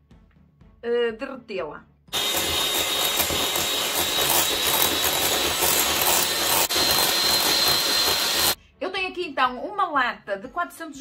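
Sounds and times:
electric hand mixer whipping cream: 2.1s - 8.6s.

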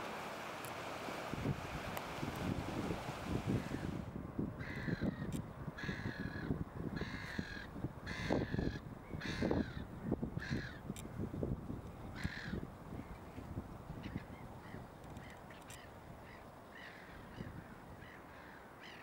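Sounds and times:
crow cawing: 4.6s - 5.2s, 5.8s - 9.8s, 10.4s - 10.8s, 12.2s - 12.6s.

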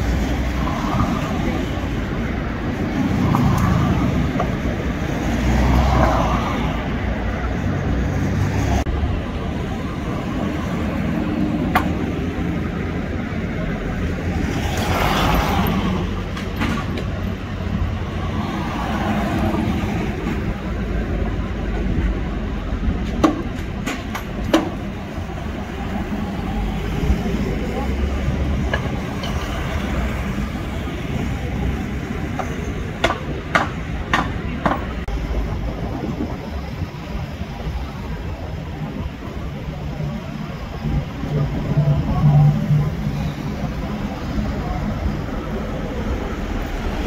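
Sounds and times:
cars passing: 0.0s - 47.0s
traffic engine rumble: 0.0s - 47.0s.

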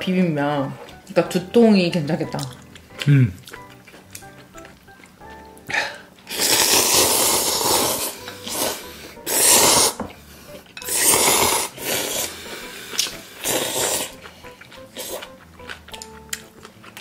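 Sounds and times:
loud slurping of noodles: 6.3s - 10.0s, 10.9s - 14.2s.

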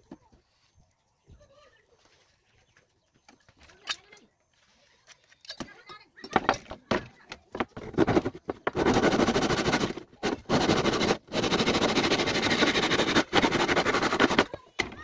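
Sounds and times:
hand tool rasping wood: 7.8s - 15.0s.

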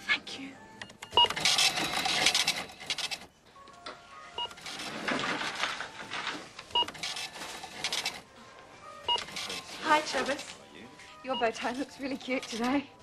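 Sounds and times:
barcode scanner beeps: 0.8s - 1.8s, 6.8s - 7.0s, 9.1s - 9.4s
rattling checkout register: 1.0s - 3.3s, 4.4s - 8.3s, 9.1s - 10.5s.

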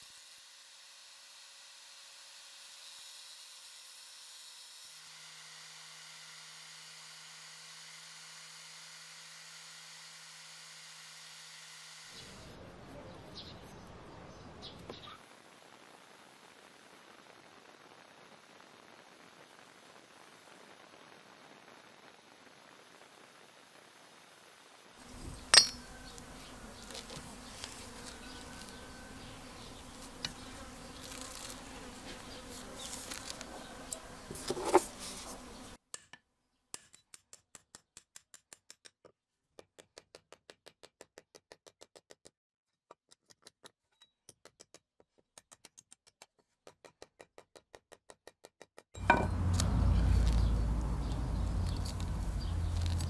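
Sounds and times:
buffing wheel motor humming: 25.0s - 35.8s, 49.1s - 53.0s.

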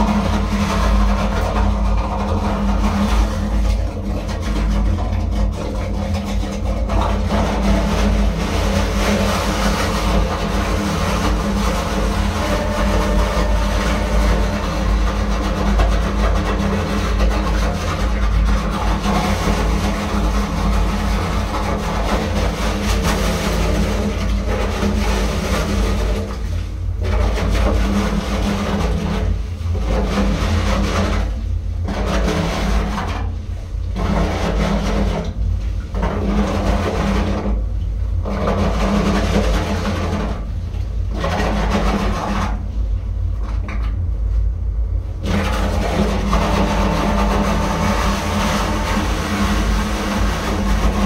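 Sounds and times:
ship machinery droning: 7.2s - 26.6s, 45.2s - 51.0s.

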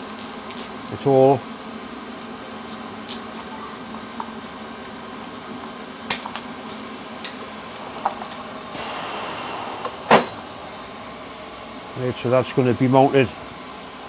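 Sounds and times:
steady workshop hum: 0.0s - 14.0s
sharp metallic clank: 10.1s - 10.4s.

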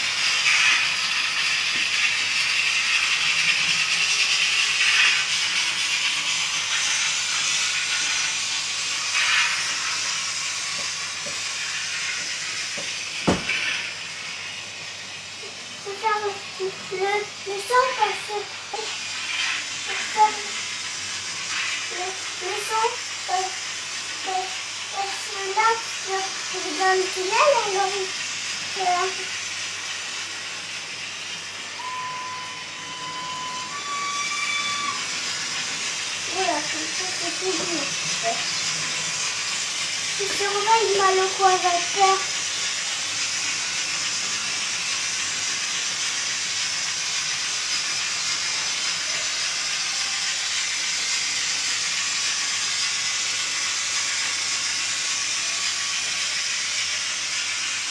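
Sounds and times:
model trains running: 0.0s - 57.9s
even whistle tone: 31.8s - 35.1s.

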